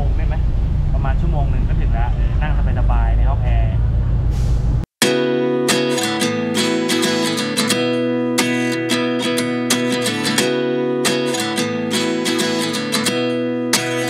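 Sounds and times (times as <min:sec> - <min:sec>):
acoustic guitar strumming: 0:05.0 - 0:14.0.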